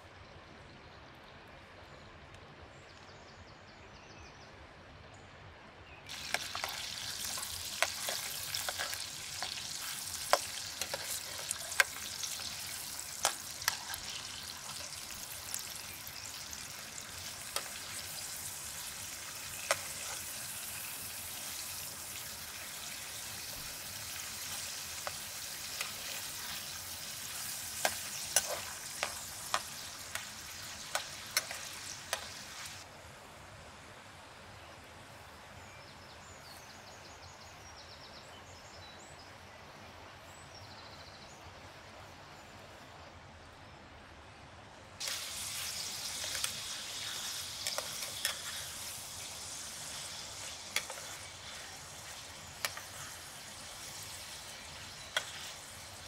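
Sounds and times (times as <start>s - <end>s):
meat sizzling in frying pan: 6.1s - 32.8s, 45.0s - 56.0s.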